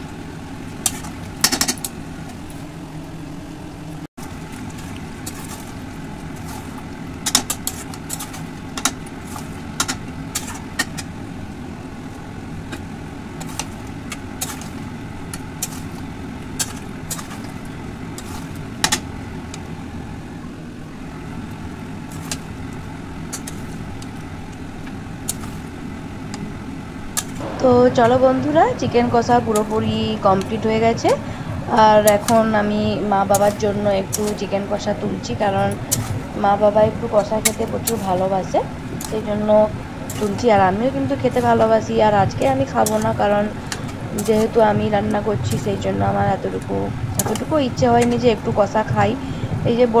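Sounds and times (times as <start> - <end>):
low rumble: 27.4 - 50.0.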